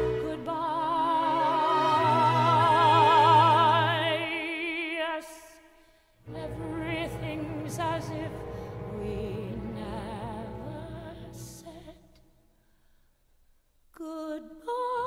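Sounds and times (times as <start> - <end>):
orchestral show music: 0.0 - 4.4, 6.3 - 12.0.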